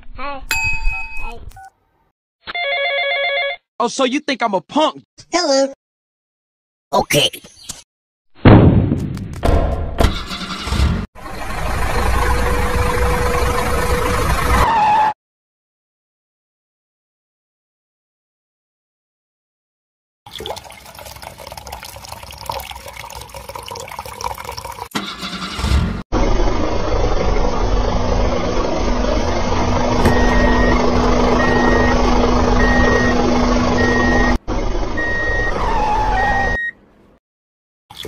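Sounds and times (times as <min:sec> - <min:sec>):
truck engine rumble: 0:10.4 - 0:14.6, 0:25.0 - 0:36.4
reversing alarm beeping: 0:30.0 - 0:34.4, 0:35.0 - 0:36.8.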